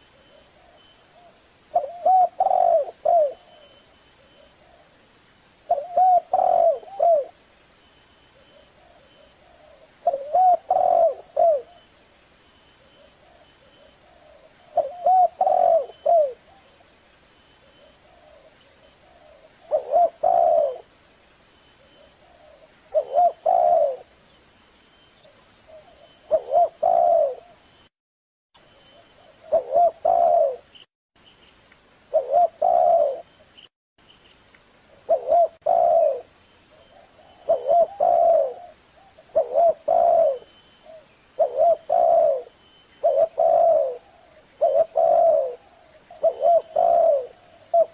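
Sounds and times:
dove cooing: 0:00.0 - 0:04.9, 0:05.7 - 0:07.4, 0:08.5 - 0:11.8, 0:13.0 - 0:16.8, 0:17.8 - 0:20.9, 0:22.2 - 0:24.1, 0:25.7 - 0:27.6, 0:29.2 - 0:30.8, 0:32.1 - 0:33.3, 0:35.0 - 0:47.9.

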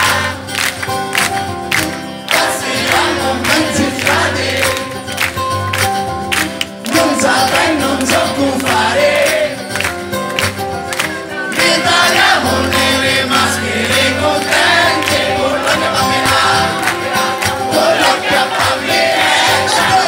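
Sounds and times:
acoustic guitars strummed: 0:00.0 - 0:20.0
voices singing: 0:02.3 - 0:05.1, 0:06.8 - 0:09.8, 0:11.1 - 0:20.0.

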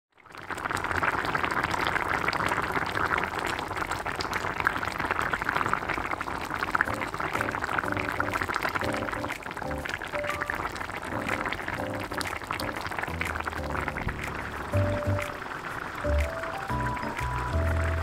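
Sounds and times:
stew bubbling and popping: 0:00.1 - 0:18.0
faint melody: 0:06.9 - 0:18.0.

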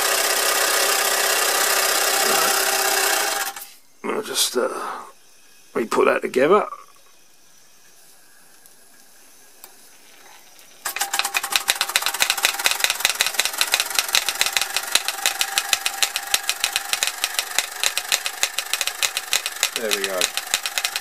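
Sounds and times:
toy steam hammers clattering: 0:10.8 - 0:21.0.

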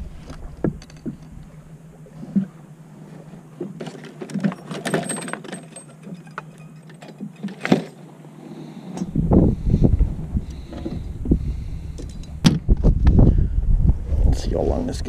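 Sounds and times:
low rumble: 0:00.0 - 0:03.6, 0:09.0 - 0:15.0
fishing gear clicking and rattling: 0:00.2 - 0:01.6, 0:03.7 - 0:08.1, 0:11.9 - 0:12.7.

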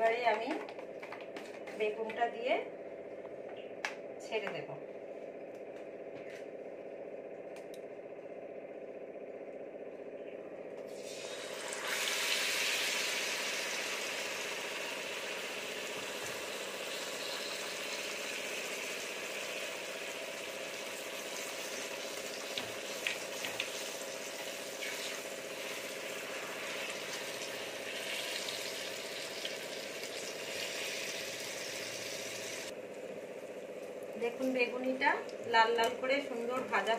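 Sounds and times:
deep-frying sizzle: 0:10.9 - 0:32.7.

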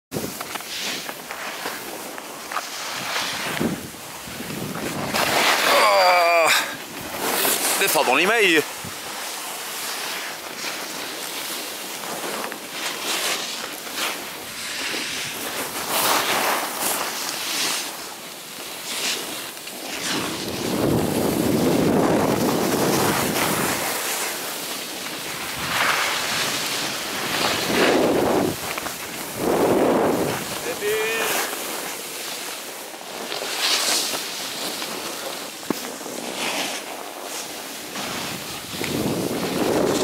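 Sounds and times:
snowboard sliding on snow: 0:00.1 - 0:40.0
wind rushing over microphone: 0:03.3 - 0:05.6, 0:20.2 - 0:24.0, 0:25.4 - 0:31.2, 0:38.2 - 0:40.0.

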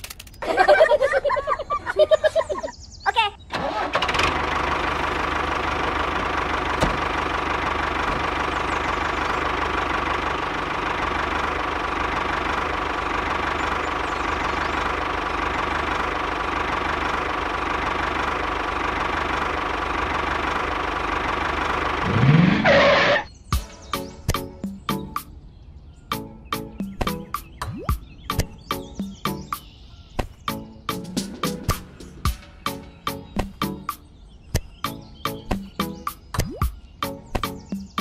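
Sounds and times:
small diesel engine running: 0:03.5 - 0:23.3.

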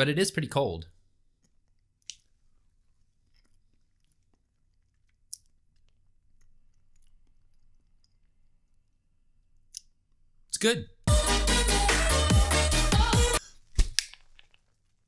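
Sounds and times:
faint chewing: 0:01.3 - 0:10.0.

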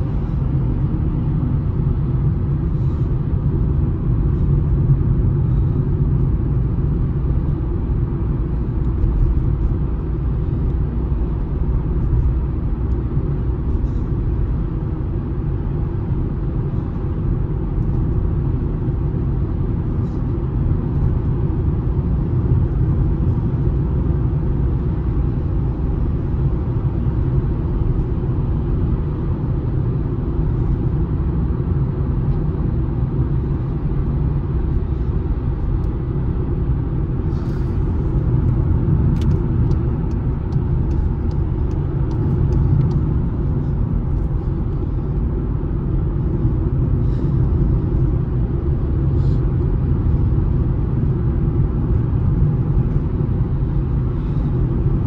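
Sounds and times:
car driving rumble from inside: 0:00.0 - 0:55.0.

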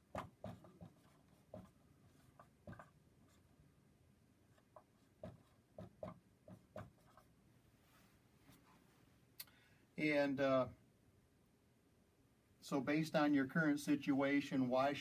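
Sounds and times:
marker squeaking on whiteboard: 0:00.1 - 0:03.4.

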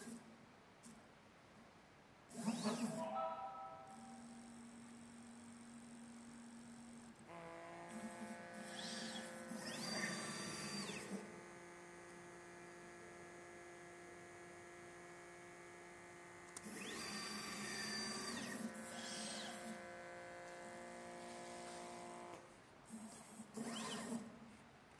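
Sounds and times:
stepper motors whining: 0:08.0 - 0:11.2.

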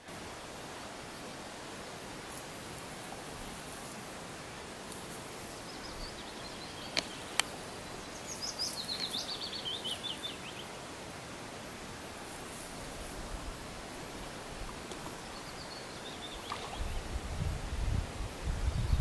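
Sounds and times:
steady outdoor hiss: 0:00.0 - 0:19.0
songbird trilling: 0:05.8 - 0:10.6.

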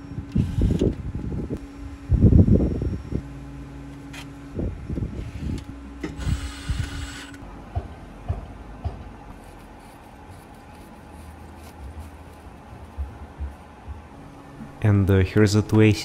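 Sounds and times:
mechanical whirr: 0:00.0 - 0:07.4.

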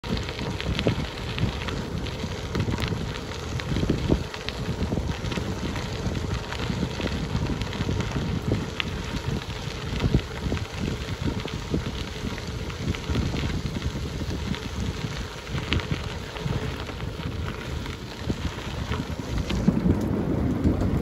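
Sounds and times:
bicycle tyres crunching on gravel: 0:00.0 - 0:21.0
wind noise on microphone: 0:00.0 - 0:21.0.

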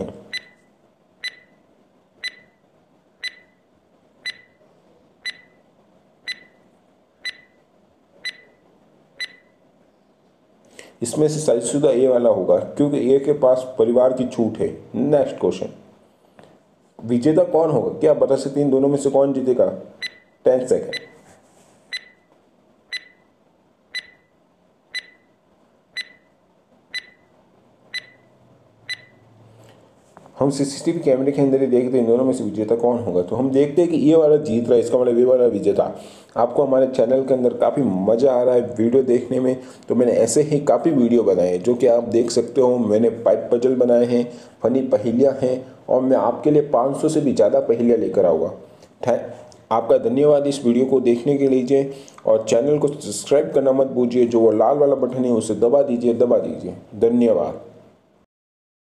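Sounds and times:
high timer beeps: 0:00.3 - 0:01.6, 0:02.2 - 0:02.6, 0:03.2 - 0:03.6, 0:04.2 - 0:04.6, 0:05.2 - 0:05.6, 0:06.3 - 0:06.6, 0:07.2 - 0:07.6, 0:08.2 - 0:08.6, 0:09.2 - 0:09.6, 0:20.0 - 0:21.2, 0:21.9 - 0:22.3, 0:22.9 - 0:23.3, 0:23.9 - 0:24.3, 0:24.9 - 0:25.3, 0:26.0 - 0:26.3, 0:26.9 - 0:27.3, 0:27.9 - 0:28.3, 0:28.9 - 0:29.2.

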